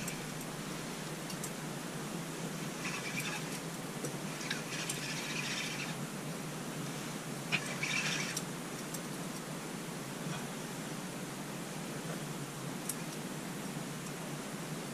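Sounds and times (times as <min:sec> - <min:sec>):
steady low hum: 0:00.0 - 0:14.9
fishing reel whirring: 0:02.7 - 0:03.6, 0:04.3 - 0:06.0, 0:07.5 - 0:08.5.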